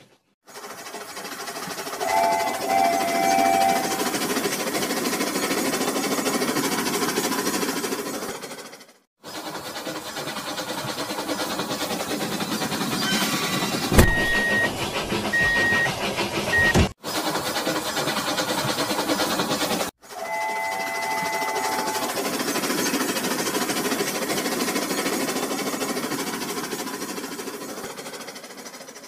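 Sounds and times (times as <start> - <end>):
toy train electric motor: 0.4 - 29.0
wheels rattling on plastic track: 0.4 - 29.0
long electronic tone: 2.0 - 4.1
short electronic beeps: 14.0 - 14.7.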